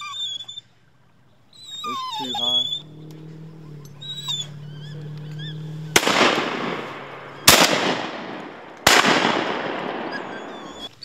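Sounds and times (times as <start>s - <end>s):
shotgun shots echoing: 5.9s - 10.9s.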